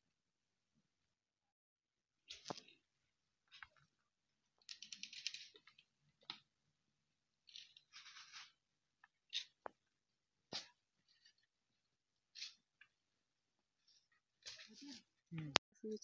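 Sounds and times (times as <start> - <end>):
faint crackling and rustling: 2.2 - 6.6, 7.3 - 15.6.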